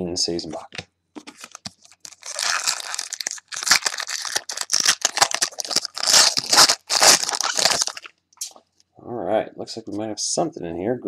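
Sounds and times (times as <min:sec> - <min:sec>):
wrapper crinkling and tearing: 0:00.6 - 0:08.1.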